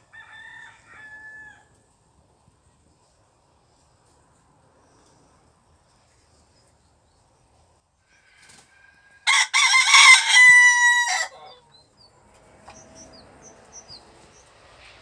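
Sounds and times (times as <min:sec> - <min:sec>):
rooster crowing: 0:00.0 - 0:01.8, 0:08.1 - 0:11.6.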